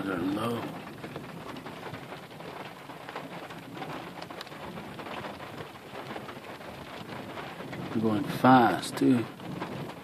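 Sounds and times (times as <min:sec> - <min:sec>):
rain pattering: 0:00.0 - 0:10.0.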